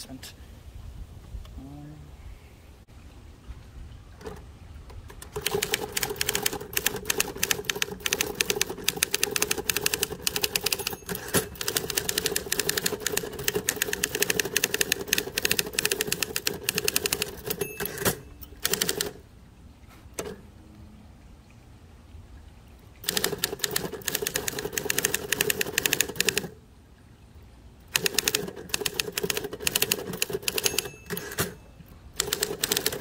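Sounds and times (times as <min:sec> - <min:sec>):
typewriter typing: 0:05.2 - 0:19.2, 0:23.0 - 0:26.5, 0:27.9 - 0:31.6, 0:32.2 - 0:33.0.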